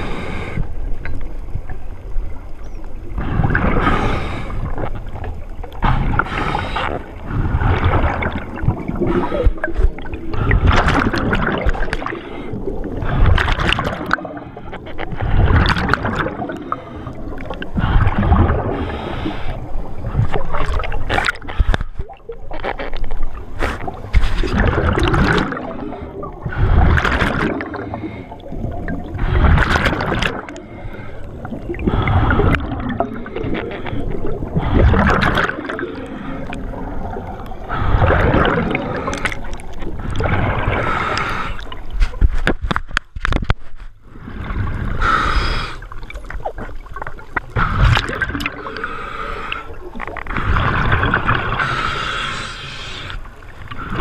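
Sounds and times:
diver inhaling through regulator: 0:03.2 - 0:04.9, 0:05.9 - 0:08.0, 0:16.4 - 0:20.3, 0:37.4 - 0:41.8, 0:44.2 - 0:46.0, 0:47.6 - 0:50.8, 0:51.5 - 0:54.0
regulator bubbling exhalations: 0:23.6 - 0:41.8, 0:47.4 - 0:52.4.

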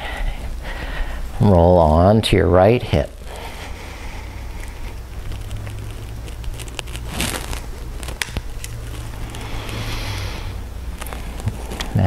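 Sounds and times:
steady low hum: 0:00.0 - 0:12.0
clothing rustling on yoga mat: 0:02.6 - 0:12.0.

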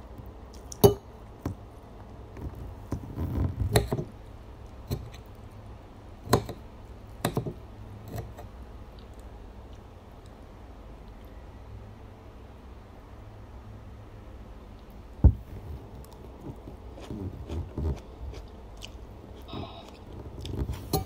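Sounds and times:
mouth sounds eating noodles: 0:16.9 - 0:21.0.

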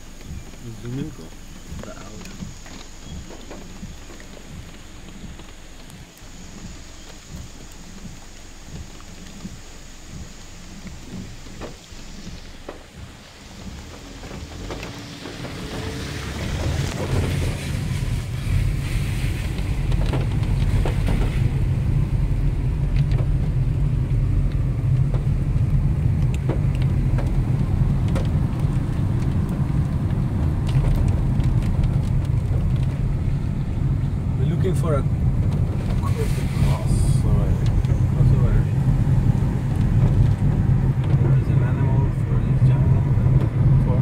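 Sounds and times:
car driving on wet road: 0:00.0 - 0:44.0
rain falling on stream: 0:00.0 - 0:44.0
light ticks: 0:00.1 - 0:15.0, 0:22.9 - 0:33.7.

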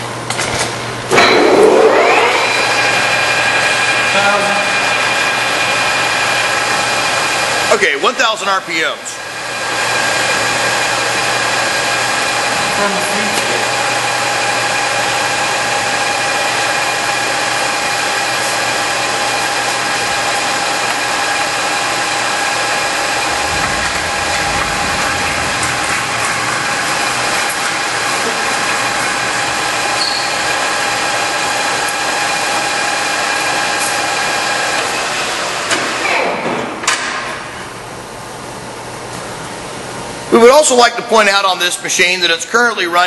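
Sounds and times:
lathe whine: 0:01.5 - 0:07.7, 0:09.4 - 0:34.7.

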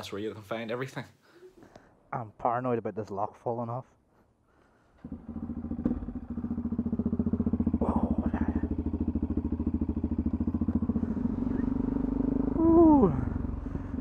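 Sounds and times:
motorcycle engine starting and idling: 0:04.9 - 0:14.0.

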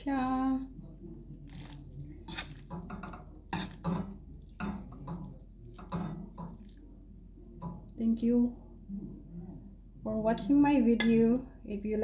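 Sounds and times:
wet noodles squishing: 0:01.2 - 0:08.0.

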